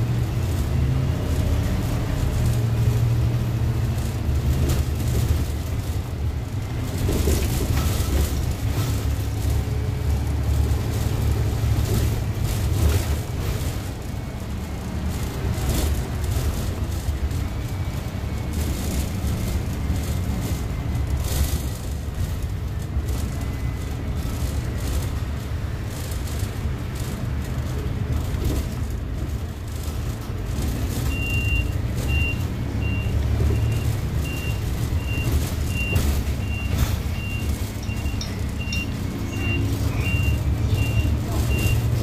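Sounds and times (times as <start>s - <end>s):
bus engine and road noise: 0.0s - 42.0s
turn signal warning beeps: 31.0s - 42.0s.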